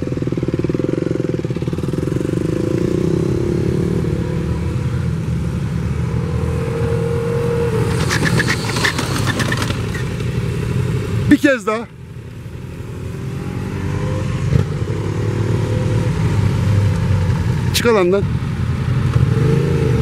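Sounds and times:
motorcycle engine running: 0.0s - 11.3s.

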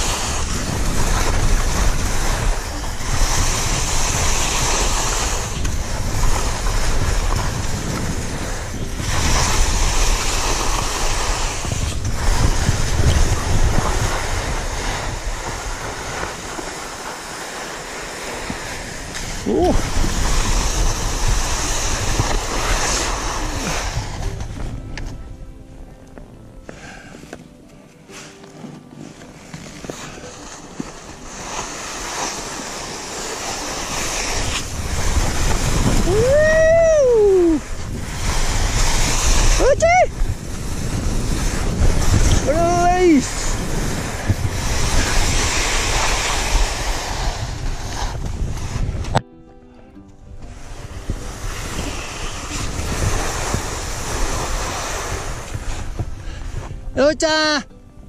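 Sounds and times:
skis scraping over snow: 0.0s - 25.3s, 26.6s - 49.2s, 50.4s - 57.0s
wind buffeting microphone: 0.0s - 26.7s, 29.6s - 49.3s, 50.0s - 58.0s
person whooping: 36.0s - 37.7s.

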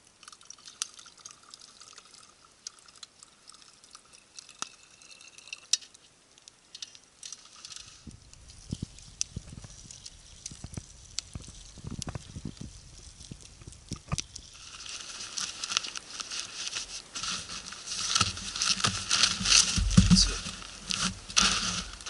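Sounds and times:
campfire crackling and popping: 0.0s - 22.0s
nylon backpack rustling: 14.6s - 22.0s.

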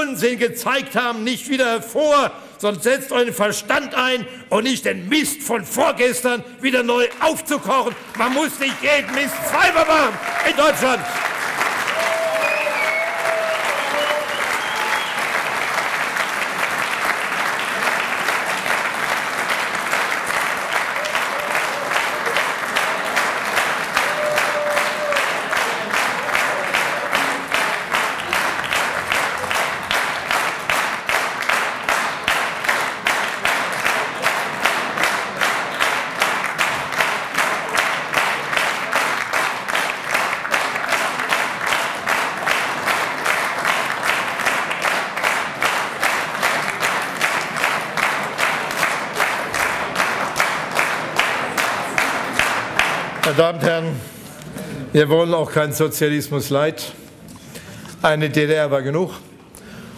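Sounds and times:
rhythmic clapping in unison: 5.8s - 53.7s
crowd applause: 6.7s - 53.9s.

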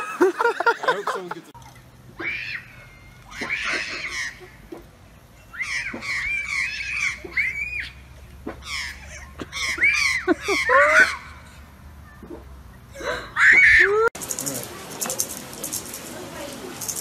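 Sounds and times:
child shrieking: 9.6s - 11.4s.

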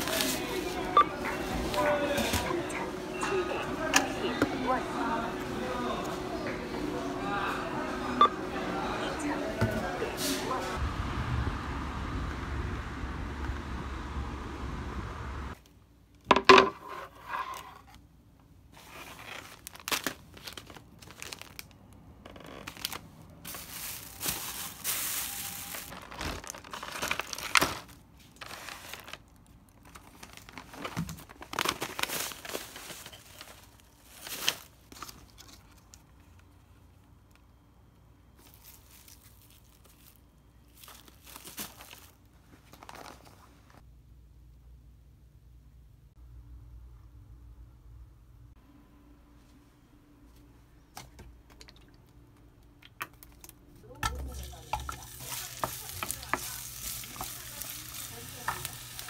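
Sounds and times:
plastic bags crinkling: 0.0s - 0.9s, 18.8s - 35.9s, 38.4s - 43.6s, 54.1s - 59.0s
street noise: 0.0s - 15.6s.

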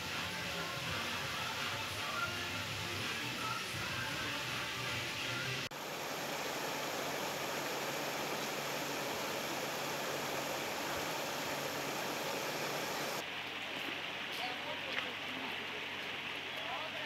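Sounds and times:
river water rushing over stones: 5.8s - 14.3s.

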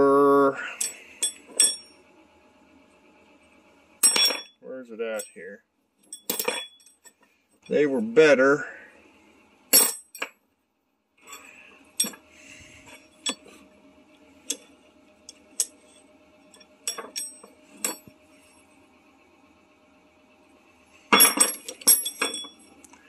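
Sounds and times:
faint steady hum: 0.0s - 23.0s
metal tools clinking: 0.8s - 1.9s, 4.0s - 5.4s, 6.0s - 7.8s, 9.7s - 10.3s, 11.3s - 12.2s, 12.8s - 13.6s, 15.6s - 18.1s, 21.1s - 22.9s.

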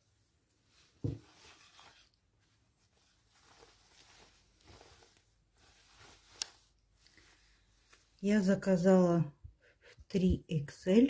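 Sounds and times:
fabric rustling: 0.0s - 8.4s
dull thump: 1.0s - 1.3s.

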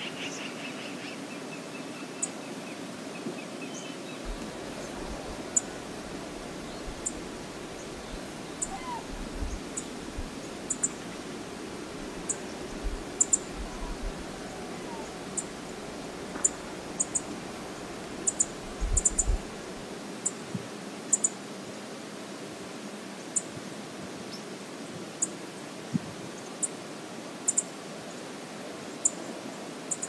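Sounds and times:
river flowing over riffles: 1.0s - 30.0s
bird chirps: 8.1s - 9.9s.

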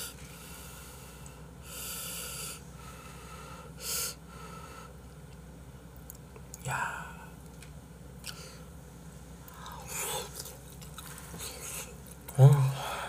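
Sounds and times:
person breathing heavily: 0.0s - 5.0s, 12.6s - 13.0s.

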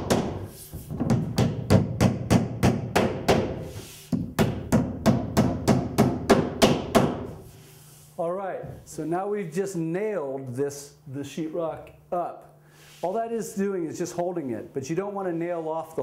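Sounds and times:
hammer driving nails: 0.0s - 7.3s.

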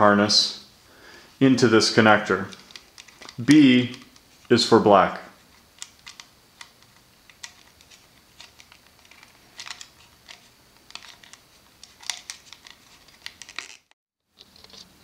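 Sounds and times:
wires clicking and rustling: 2.3s - 4.6s, 5.4s - 14.9s.

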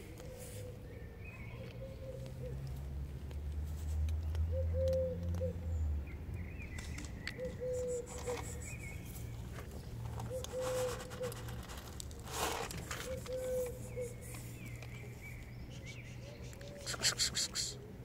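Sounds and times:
dove cooing: 1.7s - 2.6s, 4.5s - 5.6s, 7.4s - 8.8s, 10.1s - 11.7s, 12.8s - 14.2s.

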